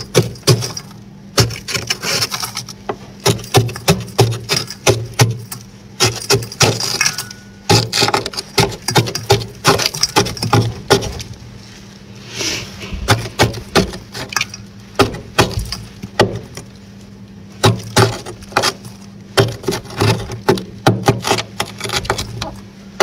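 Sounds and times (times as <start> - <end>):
spoon scraping freezer frost: 1.4 - 4.9.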